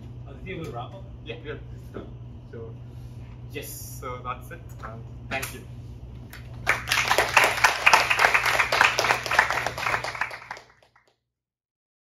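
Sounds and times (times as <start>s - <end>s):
steady low hum: 0.0s - 10.7s
audience applauding: 6.6s - 11.1s.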